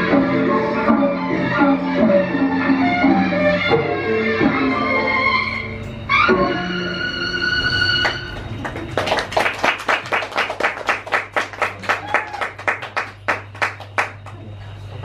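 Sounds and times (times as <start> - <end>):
audience clapping: 7.9 - 14.5.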